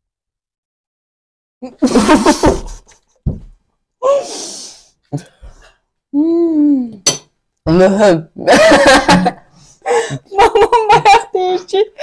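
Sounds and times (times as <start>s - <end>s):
person sighing: 4.0s - 7.0s.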